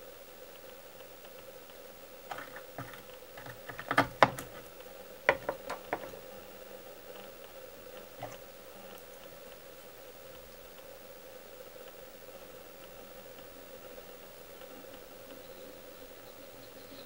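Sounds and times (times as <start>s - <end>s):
faint steady hum: 0.0s - 17.0s
tool clicks and taps: 2.3s - 4.7s, 5.3s - 6.2s.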